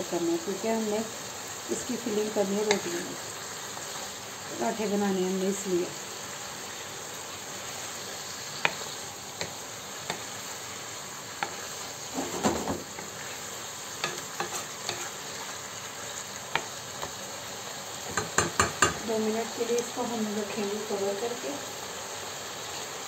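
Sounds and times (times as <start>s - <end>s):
chicken sizzling in a frying pan: 0.0s - 23.0s
wooden spoon knocking against pan: 18.1s - 19.0s.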